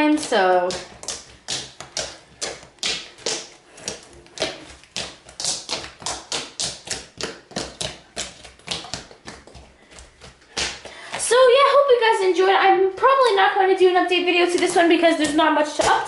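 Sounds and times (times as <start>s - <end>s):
fingers tapping slime: 0.0s - 10.9s.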